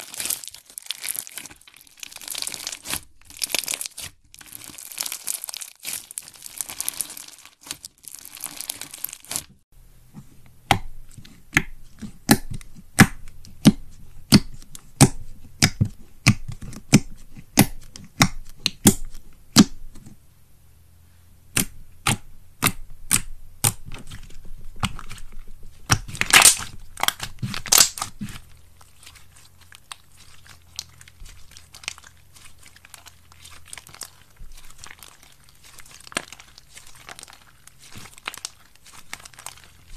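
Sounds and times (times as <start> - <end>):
slime crunching: 0.0 - 9.6, 21.5 - 39.9
slime air pockets popping: 25.8 - 28.5.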